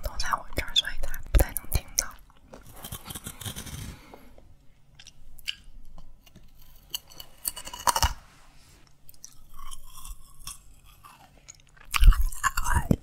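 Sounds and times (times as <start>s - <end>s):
chewing crunchy candy: 4.9s - 8.2s, 8.8s - 13.0s.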